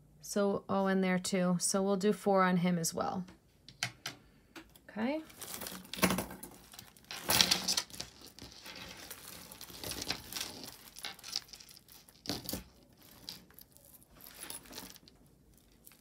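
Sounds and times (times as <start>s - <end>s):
beads and chain clicking: 5.3s - 16.0s.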